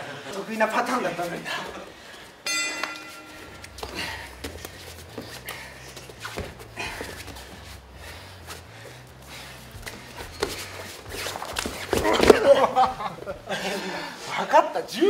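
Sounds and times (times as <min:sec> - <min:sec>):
bare feet scuffing on canvas: 0:03.6 - 0:12.8.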